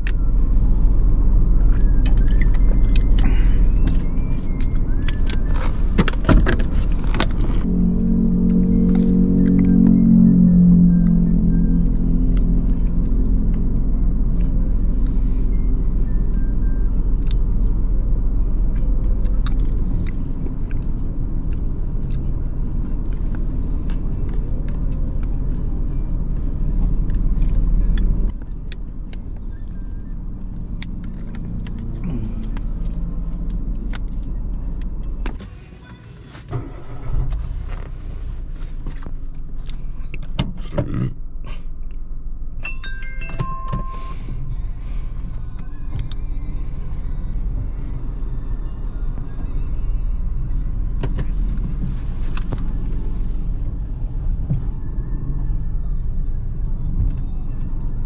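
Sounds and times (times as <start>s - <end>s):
car engine rumbling: 0.0s - 58.0s
electronic beeps: 42.6s - 44.3s.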